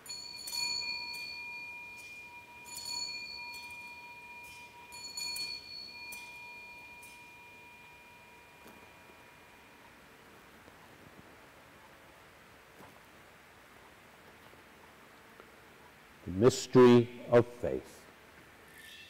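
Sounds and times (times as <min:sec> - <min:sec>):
altar bells ringing: 0:00.0 - 0:10.3.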